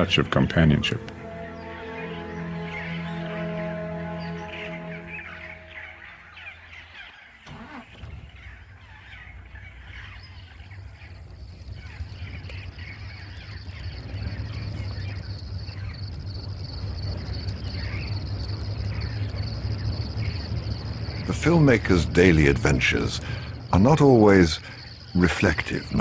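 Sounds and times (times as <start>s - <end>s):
birds chirping: 0.0s - 26.0s
vehicle engine rumble: 0.0s - 26.0s
high insect trill: 8.4s - 26.0s.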